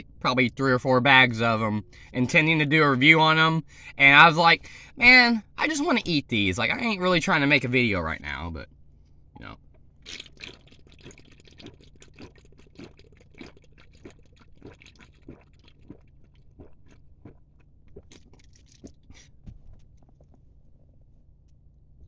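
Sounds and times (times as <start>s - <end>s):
person gulping a drink: 9.4s - 20.9s.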